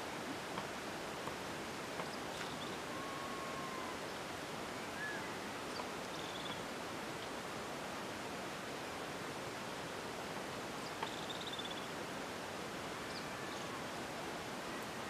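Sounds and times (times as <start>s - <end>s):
outdoor background hiss: 0.0s - 15.0s
bird whistles and chirps: 4.9s - 5.3s.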